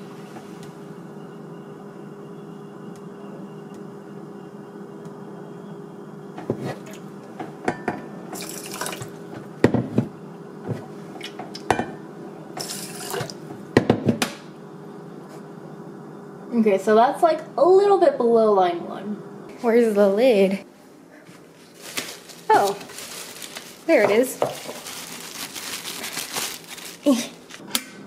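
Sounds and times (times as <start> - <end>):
water pouring into pot: 8.4 - 9.1, 12.6 - 13.4.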